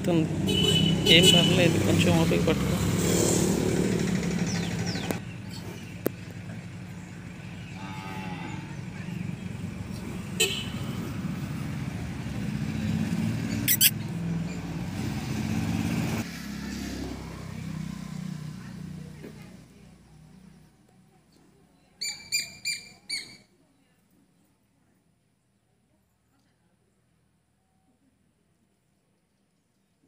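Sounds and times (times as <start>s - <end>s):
vehicle engine low rumble: 1.5s - 14.9s
cow mooing: 7.6s - 8.8s.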